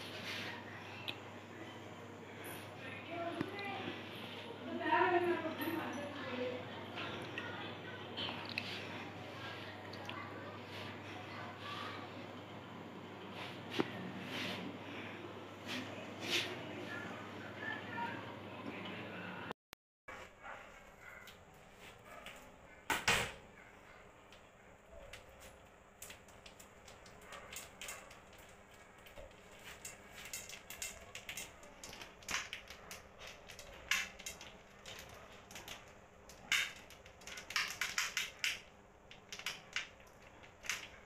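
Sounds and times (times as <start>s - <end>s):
kitchen clicks: 26.0s - 41.0s
small pieces dropping into metal pot: 36.4s - 38.6s.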